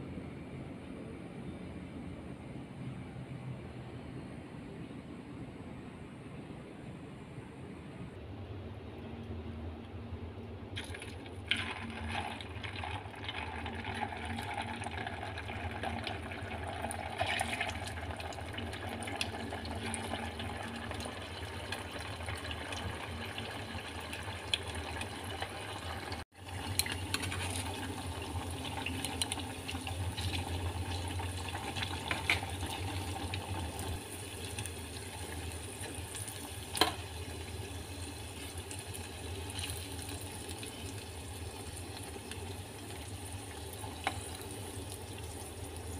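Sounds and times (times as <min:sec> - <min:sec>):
dough deep-frying in hot oil: 0:10.7 - 0:45.9.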